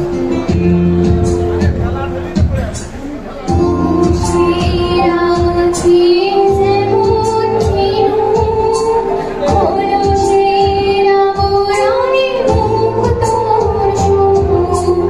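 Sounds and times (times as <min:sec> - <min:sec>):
amplified backing music with beat: 0:00.0 - 0:15.0
woman singing into microphone: 0:03.5 - 0:15.0.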